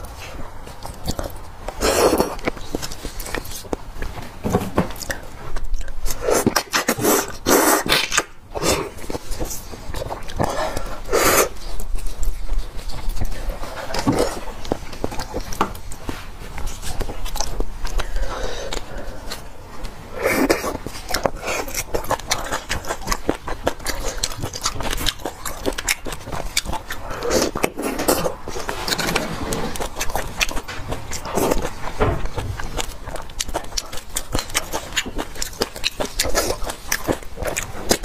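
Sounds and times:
wet chewing and lip-smacking: 0:00.0 - 0:38.0
slurping: 0:05.0 - 0:32.0.

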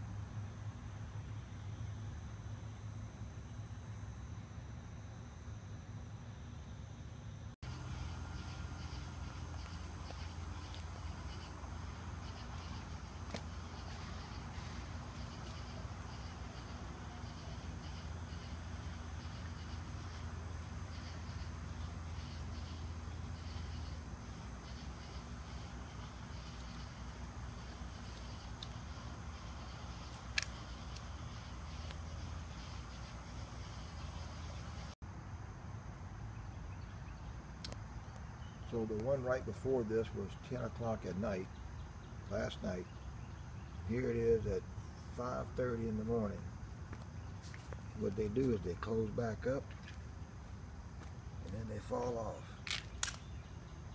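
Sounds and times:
night insects trilling: 0:01.0 - 0:53.9
low hum: 0:07.6 - 0:36.5
sharp click: 0:52.6 - 0:53.3.

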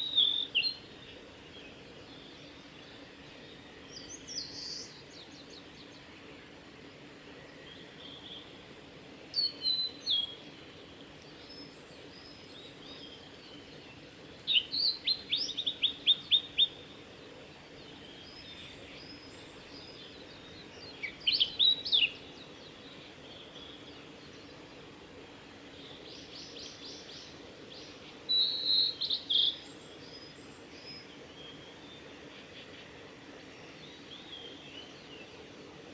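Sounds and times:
bird singing whistled notes: 0:00.0 - 0:00.9, 0:03.5 - 0:06.0, 0:09.3 - 0:10.4, 0:14.5 - 0:16.9, 0:18.0 - 0:23.8, 0:25.9 - 0:32.0
faint high bird chirps: 0:28.3 - 0:31.8.

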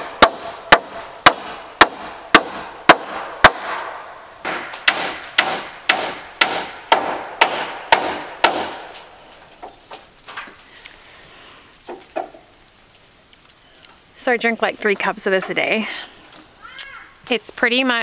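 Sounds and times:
hammer driving nails into wood: 0:00.0 - 0:03.8, 0:04.4 - 0:09.1.

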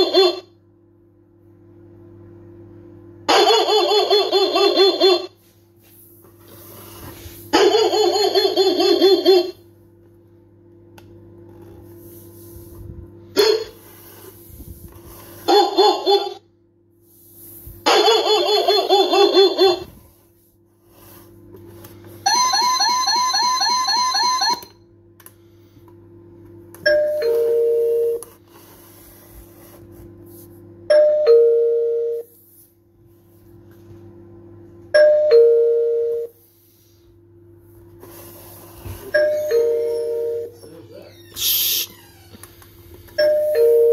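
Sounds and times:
ding-dong door chime: 0:26.9 - 0:28.2, 0:30.9 - 0:32.1, 0:35.0 - 0:36.2, 0:39.1 - 0:40.5, 0:43.2 - 0:43.9.

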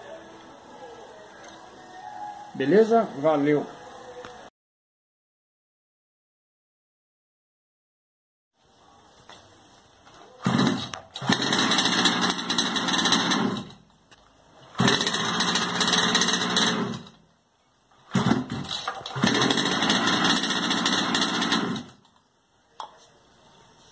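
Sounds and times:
small two-stroke engine starting: 0:10.4 - 0:13.8, 0:14.7 - 0:17.2, 0:18.1 - 0:22.0.

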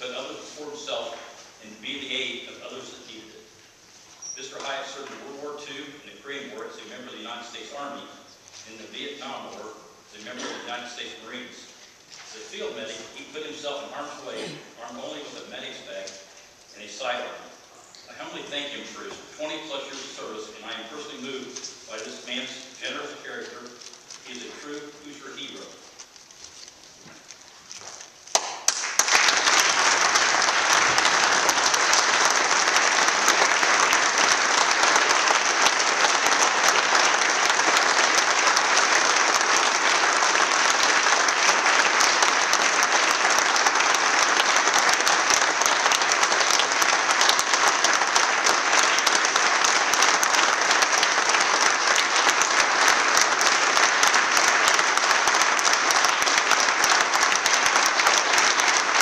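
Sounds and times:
crowd applauding: 0:28.3 - 0:59.0.

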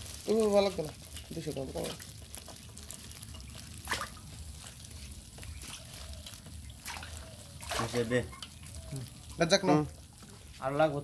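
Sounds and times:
fish wriggling in steel bowl: 0:00.0 - 0:10.5
dripping water: 0:00.8 - 0:10.4
water splashes: 0:01.1 - 0:02.2, 0:03.3 - 0:04.3, 0:05.0 - 0:09.6.

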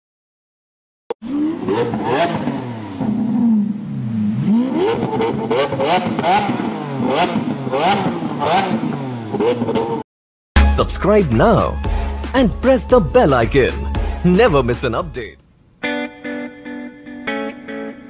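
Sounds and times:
sports car engine revving: 0:01.2 - 0:10.0.

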